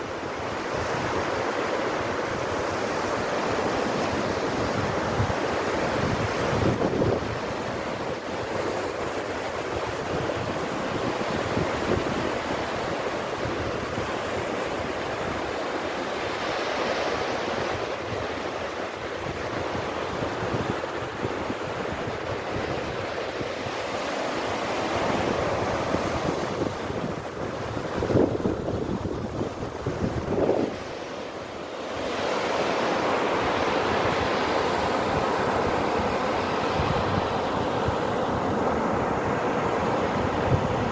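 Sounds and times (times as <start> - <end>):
small waves breaking on beach: 0.0 - 40.9
wind buffeting microphone: 4.2 - 7.8, 24.9 - 31.0, 33.4 - 40.9.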